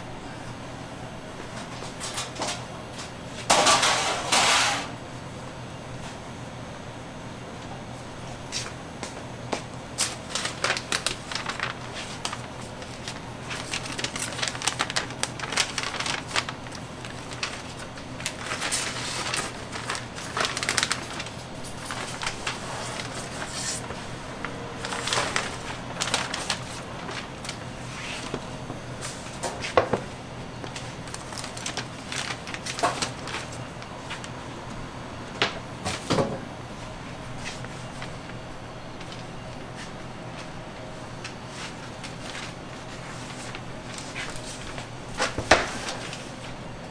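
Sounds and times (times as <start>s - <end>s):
parchment paper rustling: 9.9s - 34.4s, 39.0s - 40.6s, 41.2s - 46.9s.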